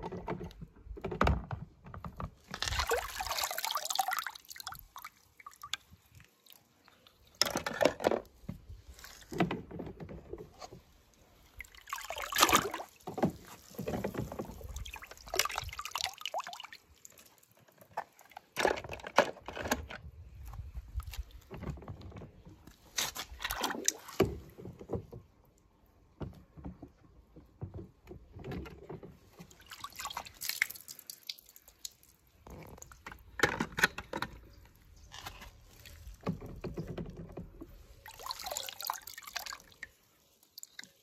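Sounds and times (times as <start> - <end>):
water sloshing in plastic tub: 0.0 - 41.0.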